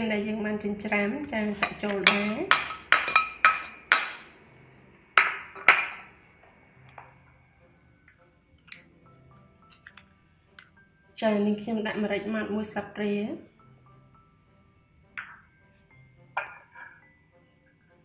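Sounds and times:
metal spoon clinking on ceramic bowl: 1.4s - 4.3s, 5.2s - 6.1s, 16.4s - 17.0s.

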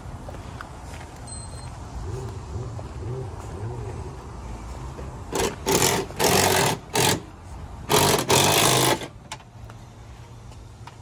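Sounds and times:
power tool bursts: 5.3s - 7.2s, 7.9s - 9.1s.

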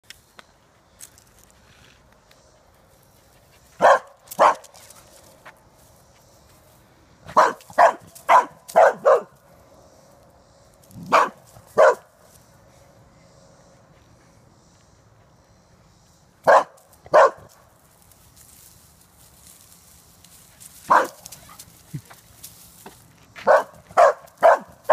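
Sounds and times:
dog barking: 3.8s - 4.6s, 7.3s - 9.4s, 11.1s - 12.1s, 16.4s - 17.5s, 20.9s - 21.6s, 23.4s - 24.9s.

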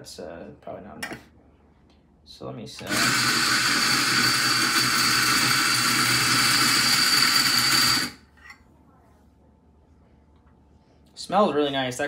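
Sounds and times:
coffee grinder motor whine: 2.8s - 8.2s.

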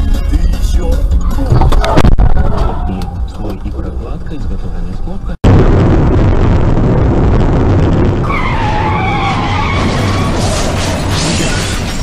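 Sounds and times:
car road and engine noise: 2.9s - 5.4s
tyres skidding: 8.2s - 12.0s.

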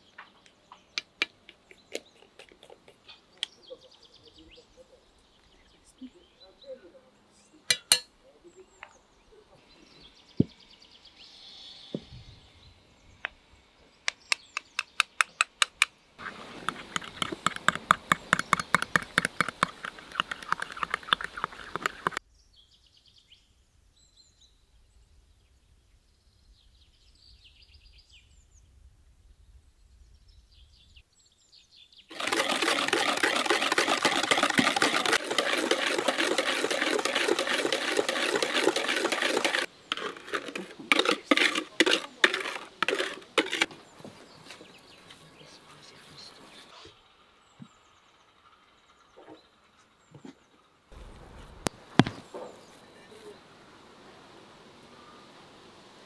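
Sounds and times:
small birds chirping: 0.0s - 28.7s, 29.4s - 53.6s
whisk clicking in plastic bowl: 14.6s - 22.2s, 32.1s - 43.7s.

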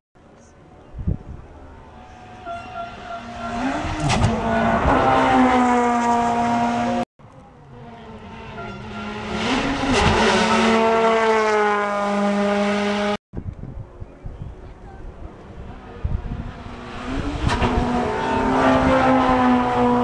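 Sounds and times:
rally car engine revving: 2.1s - 7.0s, 7.7s - 13.2s, 15.7s - 20.0s.

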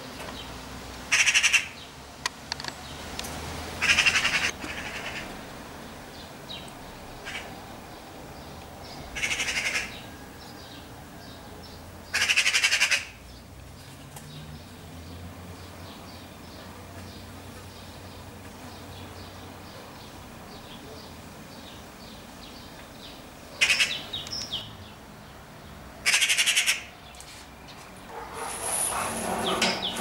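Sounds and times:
magpie chattering: 3.8s - 5.2s, 9.2s - 10.0s, 12.1s - 13.2s, 23.6s - 24.1s, 26.0s - 26.9s.

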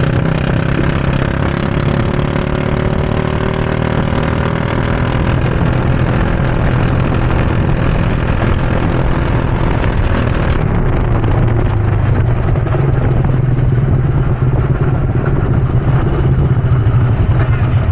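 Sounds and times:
go-kart engine running: 0.0s - 17.9s.

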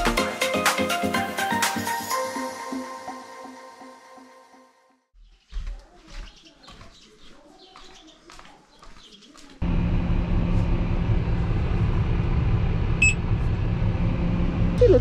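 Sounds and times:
tractor diesel engine running: 9.6s - 15.0s.

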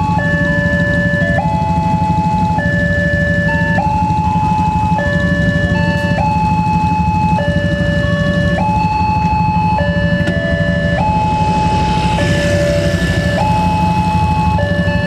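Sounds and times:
two-tone crossing alarm: 0.0s - 15.0s
steady low rumble: 10.4s - 15.0s.

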